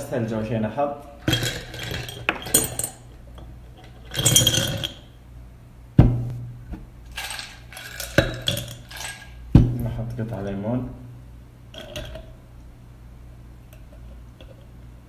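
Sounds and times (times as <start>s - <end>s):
ice cubes clinking in glass: 1.2s - 3.0s, 4.0s - 5.1s, 7.1s - 9.4s.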